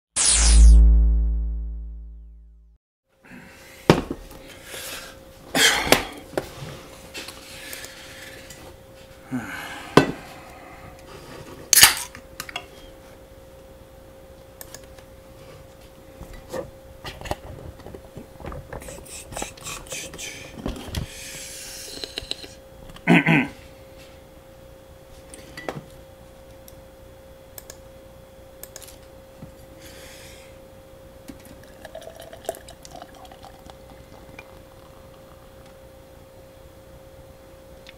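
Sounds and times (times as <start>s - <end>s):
faint steady hum: 3.2s - 37.9s
beer pouring into a steel cup: 31.4s - 35.6s.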